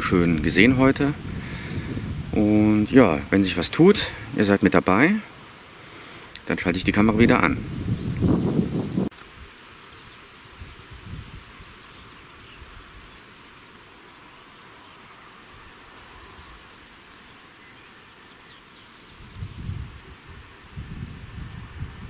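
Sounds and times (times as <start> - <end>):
insect chirping bursts: 12.1 - 13.7, 15.5 - 17.1, 18.6 - 19.9.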